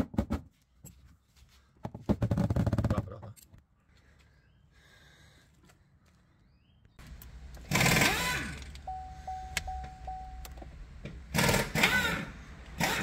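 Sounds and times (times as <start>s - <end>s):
diesel engine starting and running: 7.0s - 13.0s
dashboard chime beeping: 8.8s - 10.7s.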